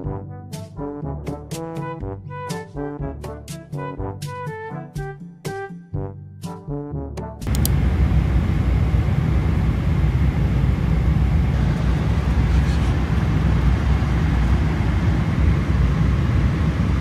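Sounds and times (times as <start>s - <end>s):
airliner cabin engine rumble: 7.5s - 17.0s.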